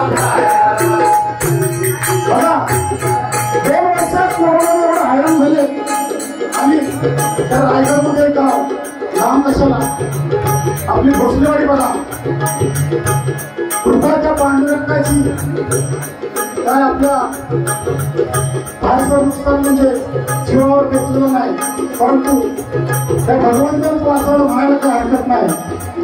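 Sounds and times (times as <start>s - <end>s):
voices singing: 0.0s - 1.9s
small hand cymbals: 0.0s - 26.0s.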